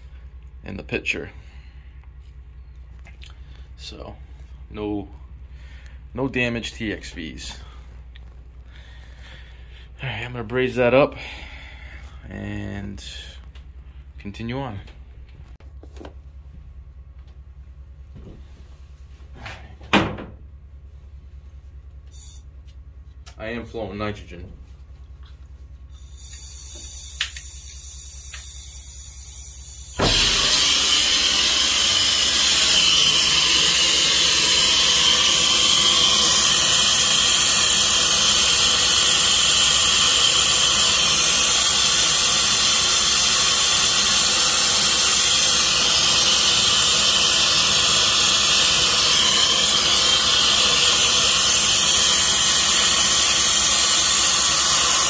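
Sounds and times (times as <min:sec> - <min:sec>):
torch flame hissing: 0:26.2 - 0:55.0.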